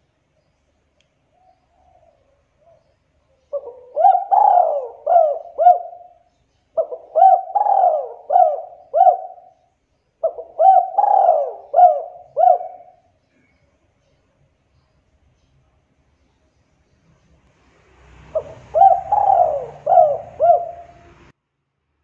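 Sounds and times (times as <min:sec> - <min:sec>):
dove cooing: 0:01.4 - 0:13.1, 0:18.3 - 0:21.3.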